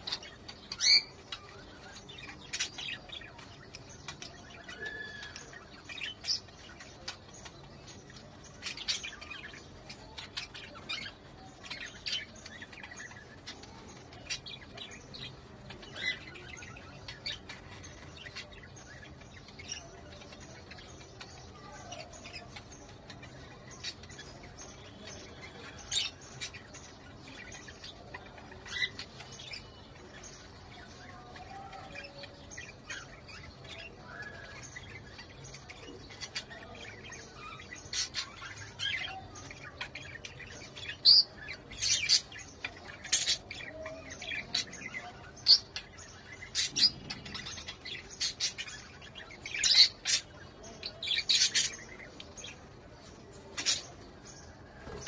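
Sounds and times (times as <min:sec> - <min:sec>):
budgerigars chirping: 0:31.2 - 0:52.6, 0:53.4 - 0:54.0.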